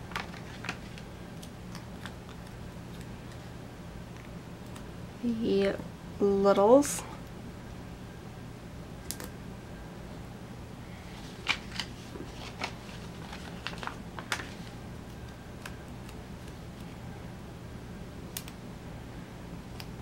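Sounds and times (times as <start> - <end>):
paper rustling: 0.0 - 1.1, 11.1 - 14.8
faint low hum: 0.0 - 20.0.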